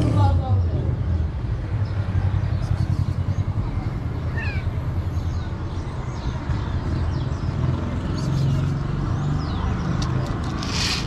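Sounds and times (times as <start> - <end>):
cat mewing: 4.3 - 4.8.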